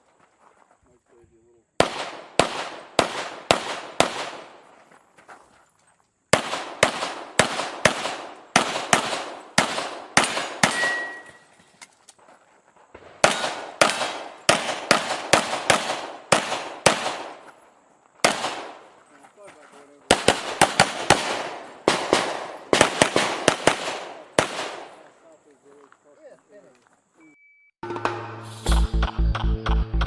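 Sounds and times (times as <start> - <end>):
pistol shots with ringing tail: 1.8 - 4.7, 6.3 - 11.5, 13.2 - 17.5, 18.2 - 18.9, 20.1 - 25.1.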